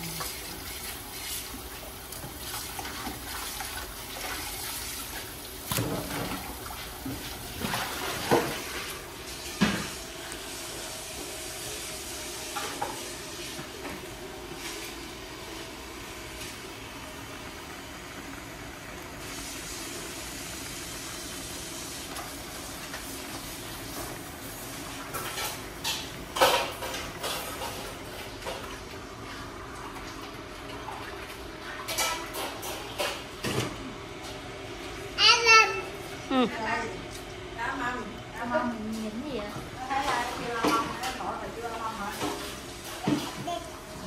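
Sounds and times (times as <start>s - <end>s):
pots and utensils clanking: 12.4s - 13.8s, 25.0s - 28.8s, 31.7s - 33.8s, 39.9s - 43.5s.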